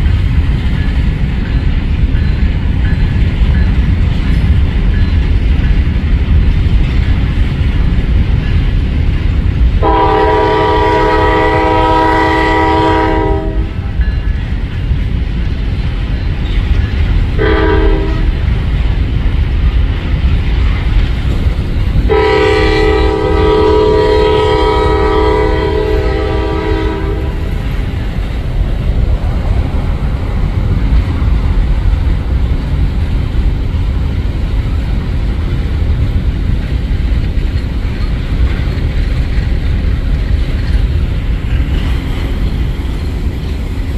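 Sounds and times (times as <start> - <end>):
freight cars rumbling and clattering: 0.0 - 43.9
locomotive air horn: 9.8 - 13.9, 17.4 - 18.4, 22.1 - 27.6.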